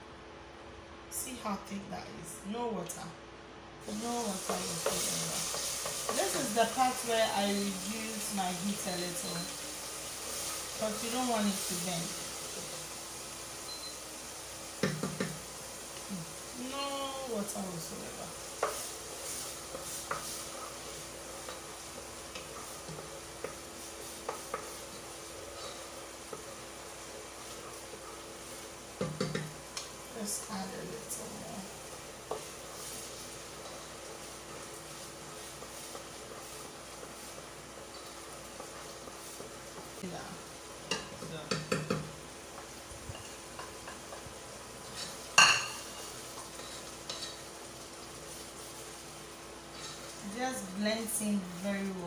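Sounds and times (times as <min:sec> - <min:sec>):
paste sizzling in oil: 0:03.8 - 0:52.0
spoon knocking against pot: 0:14.8 - 0:15.4, 0:29.0 - 0:29.6, 0:40.9 - 0:42.1.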